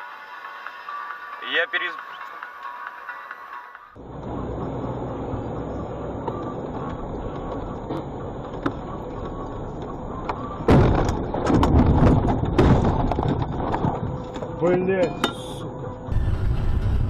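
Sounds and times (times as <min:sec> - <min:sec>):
vehicle engine and road noise: 0:00.0 - 0:17.0
banging and scraping: 0:10.2 - 0:15.6.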